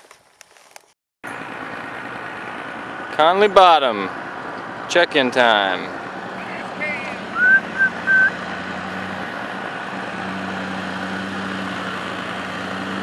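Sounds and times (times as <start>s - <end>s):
outboard motor idling: 1.3s - 8.9s
short high chirps: 7.4s - 8.4s.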